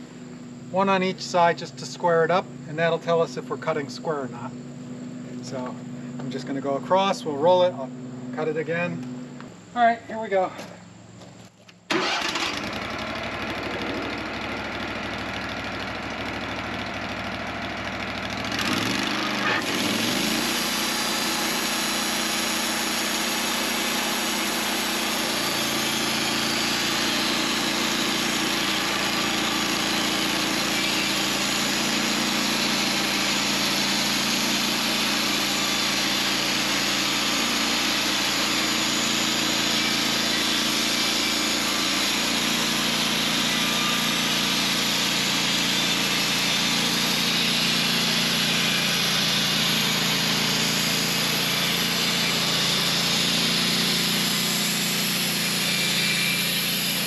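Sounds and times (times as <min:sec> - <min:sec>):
sawmill gas engine running: 0:00.0 - 0:08.6, 0:11.9 - 0:57.0
band blade hissing through wood: 0:19.4 - 0:57.0.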